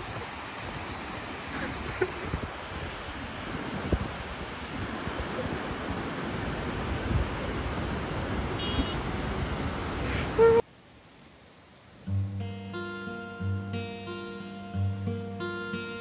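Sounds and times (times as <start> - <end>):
wind buffeting microphone: 0.0 - 10.6
river running over rocks: 0.0 - 12.1.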